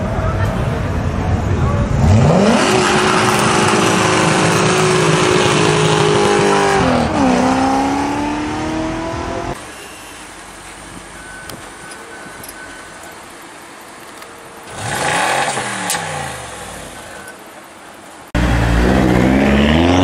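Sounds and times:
car engine revving hard: 2.0s - 9.6s, 14.7s - 16.9s, 18.4s - 20.0s.

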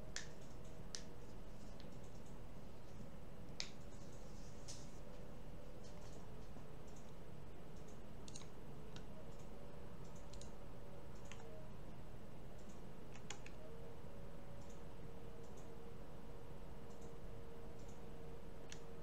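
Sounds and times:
low background hiss and hum: 0.0s - 19.0s
computer mouse clicking: 0.1s - 2.4s, 3.5s - 4.8s, 6.8s - 11.6s, 12.6s - 13.7s, 14.6s - 14.8s, 15.4s - 15.8s, 16.8s - 19.0s.

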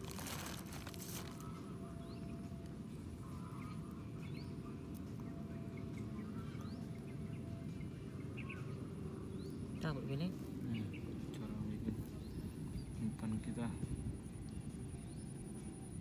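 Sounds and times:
faint steady hum: 0.0s - 16.0s
steady low rumble: 0.0s - 16.0s.

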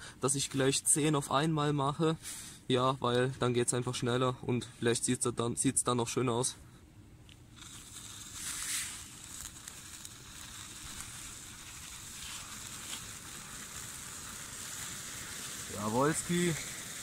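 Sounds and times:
sparklers fizzing: 7.6s - 17.0s.

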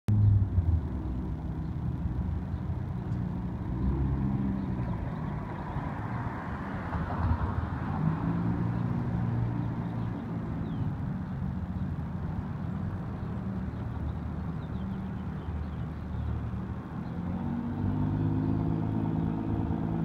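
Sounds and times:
car engines: 0.1s - 20.0s
car passing close: 14.7s - 20.0s.

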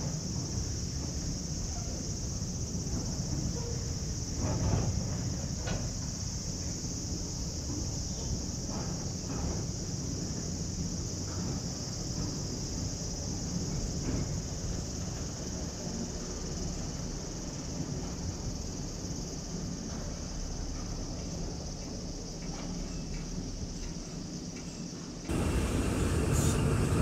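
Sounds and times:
high insect chorus: 0.0s - 27.0s
freight train rumbling past: 25.0s - 27.0s.

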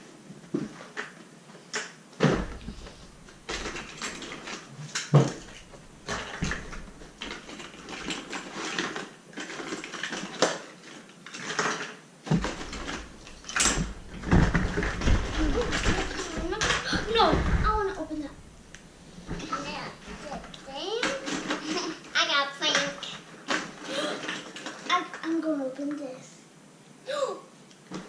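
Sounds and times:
heavy thumps: 2.2s - 7.6s, 12.3s - 21.7s
rustling: 2.2s - 22.2s
plastic eggs clattering: 2.6s - 10.6s, 11.3s - 18.6s.

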